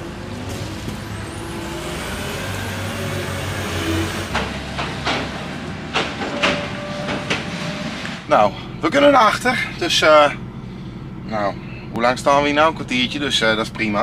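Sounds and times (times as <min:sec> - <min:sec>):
diesel truck engine idling: 0:00.0 - 0:14.0.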